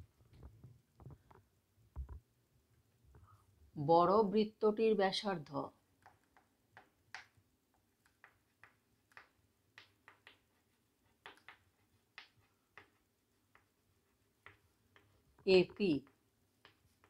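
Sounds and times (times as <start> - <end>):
chalk writing on chalkboard: 8.0 - 17.0.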